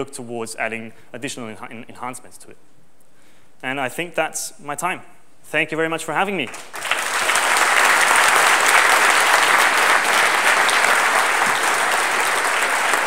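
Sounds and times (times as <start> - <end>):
audience applauding: 6.5 - 13.0.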